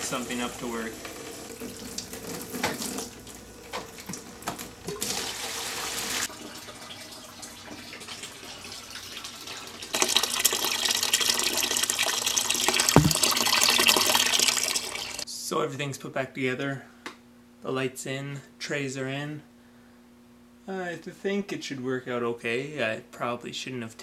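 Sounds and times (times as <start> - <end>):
water splashing and sloshing: 13.0 - 13.3
running water rushing: 13.0 - 13.4.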